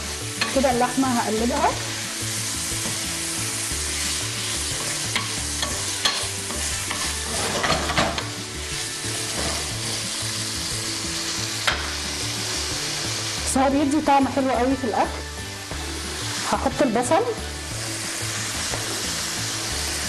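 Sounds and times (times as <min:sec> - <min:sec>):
beef sizzling in a pan: 0:00.0 - 0:20.0
wooden spoon scraping a pan: 0:04.0 - 0:08.3.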